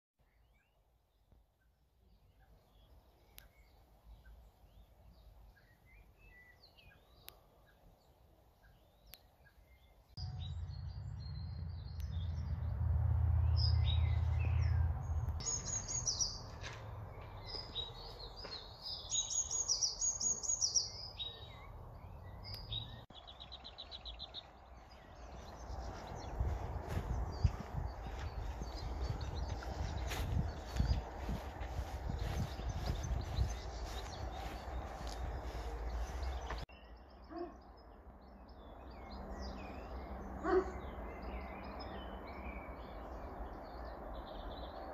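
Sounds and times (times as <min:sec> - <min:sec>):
steady low rumble: 0:10.2 - 0:16.3, 0:24.5 - 0:36.7
birds singing and chirping: 0:13.4 - 0:44.9.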